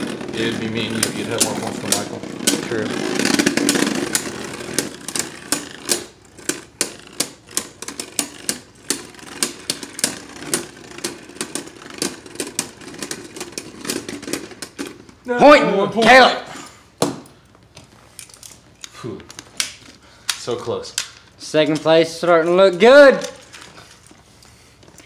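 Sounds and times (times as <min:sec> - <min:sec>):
whirring spin: 0:00.0 - 0:14.7
spinning tops clacking together: 0:00.0 - 0:15.2.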